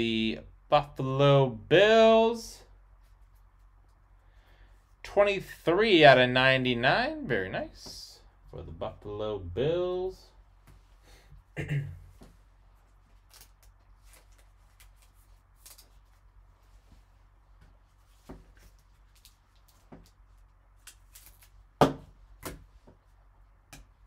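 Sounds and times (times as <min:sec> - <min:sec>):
plastic card sleeves rustling: 0:12.8 - 0:21.7.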